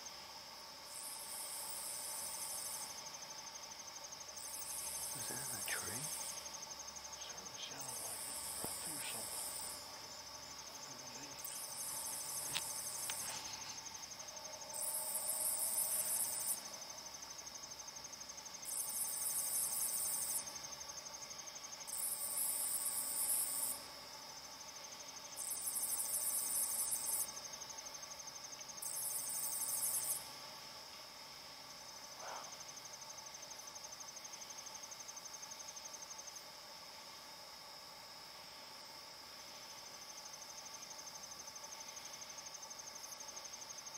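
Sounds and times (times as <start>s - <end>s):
insect high trill: 0.0s - 38.8s
insect pulsed call: 0.0s - 43.9s.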